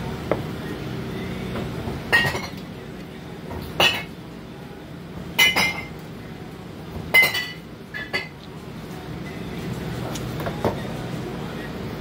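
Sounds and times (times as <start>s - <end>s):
low steady hum: 0.0s - 12.0s
glasses and dishes clinking: 2.1s - 2.7s, 3.5s - 4.2s, 5.3s - 6.0s, 7.1s - 8.4s.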